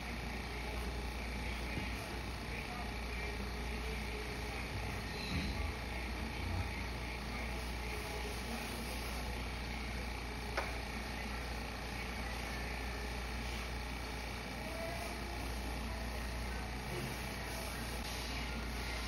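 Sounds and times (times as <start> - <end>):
workshop hiss: 10.6 - 19.0.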